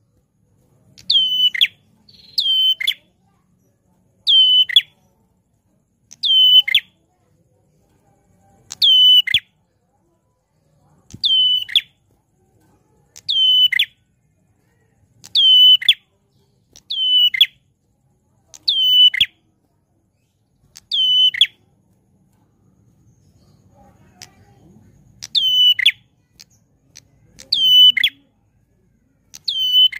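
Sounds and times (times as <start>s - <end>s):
bird whistling call: 11.2s - 11.9s.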